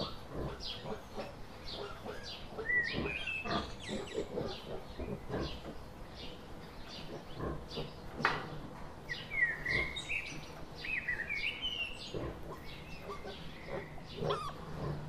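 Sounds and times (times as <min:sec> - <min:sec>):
high wavering bird calls: 0:01.6 - 0:04.7, 0:09.1 - 0:14.8
birds chirping in short notes: 0:09.1 - 0:14.6.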